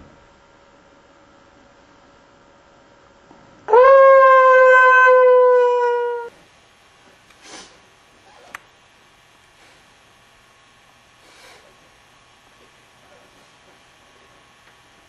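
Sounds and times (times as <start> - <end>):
loud held scream: 3.7 - 6.3.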